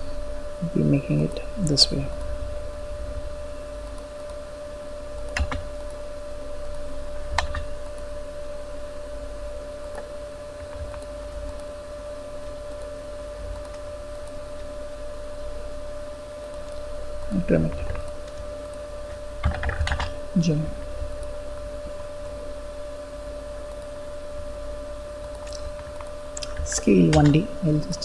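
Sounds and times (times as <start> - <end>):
low background rumble: 0.0 - 9.5
steady electrical hum: 0.0 - 28.0
computer mouse clicks: 7.3 - 8.0.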